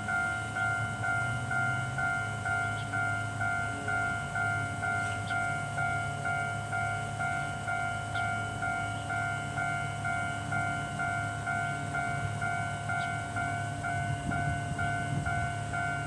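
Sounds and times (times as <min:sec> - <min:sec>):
level crossing warning bell: 0:00.0 - 0:16.0.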